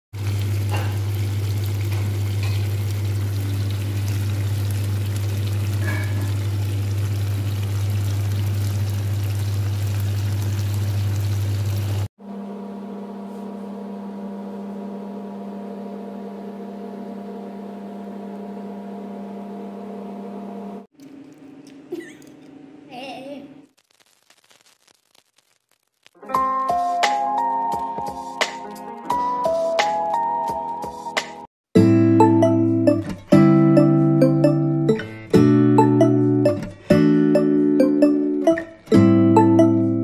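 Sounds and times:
sauce bubbling in a frying pan: 0:00.2 - 0:12.1.

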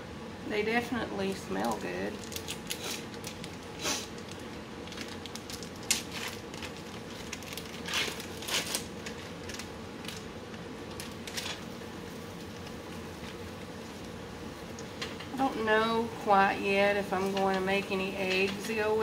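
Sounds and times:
faint steady hum: 0:00.0 - 0:19.0
plastic package rustling: 0:01.6 - 0:14.2.

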